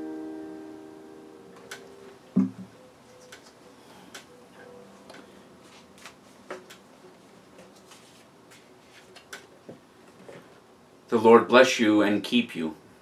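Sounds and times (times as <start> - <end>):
book pages rustling: 7.2 - 9.3.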